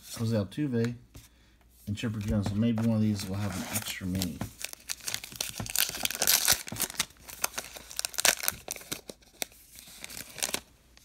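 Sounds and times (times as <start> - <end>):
wrapper tearing and crinkling: 4.2 - 10.7.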